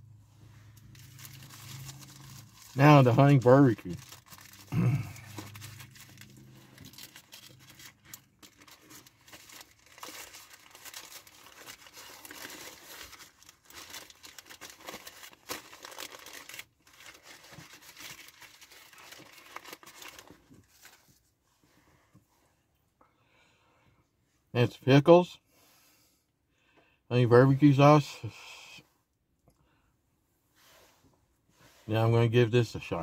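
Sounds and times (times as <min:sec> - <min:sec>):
wrapper crinkling and tearing: 0:00.7 - 0:21.0.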